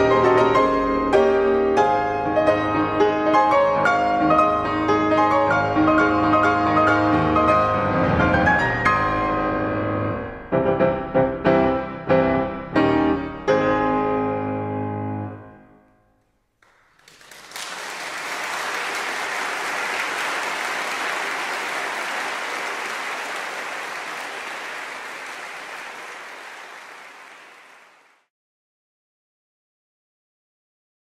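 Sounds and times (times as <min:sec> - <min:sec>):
audience applauding: 0:16.6 - 0:28.3.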